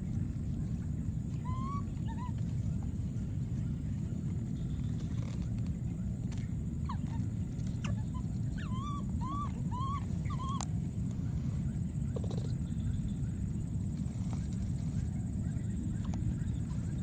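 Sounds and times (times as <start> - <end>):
rising and falling calls: 7.8 - 10.6.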